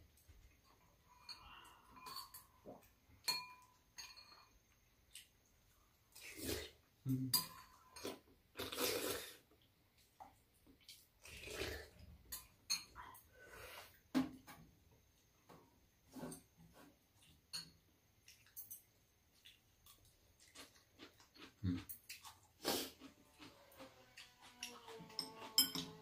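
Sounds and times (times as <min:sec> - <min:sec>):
spoons clinking against ceramic bowls: 0:00.6 - 0:04.7, 0:07.3 - 0:08.2, 0:12.3 - 0:13.0, 0:17.5 - 0:18.9, 0:24.2 - 0:26.0
people slurping soup: 0:06.1 - 0:07.2, 0:08.1 - 0:09.5, 0:11.2 - 0:12.2, 0:22.5 - 0:25.5.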